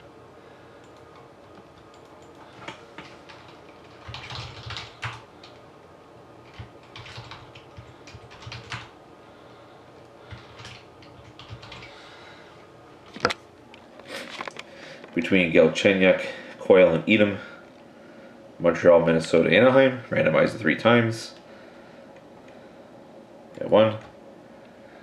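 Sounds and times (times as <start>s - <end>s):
computer keyboard typing: 0.8s - 5.6s, 6.4s - 8.9s, 10.3s - 12.0s.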